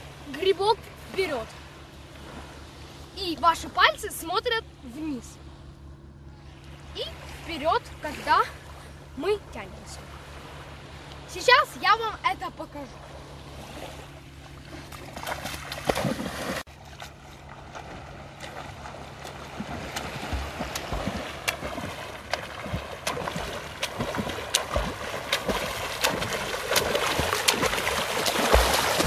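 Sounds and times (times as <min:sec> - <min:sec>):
swimmer's strokes splashing water: 0:13.6 - 0:29.0.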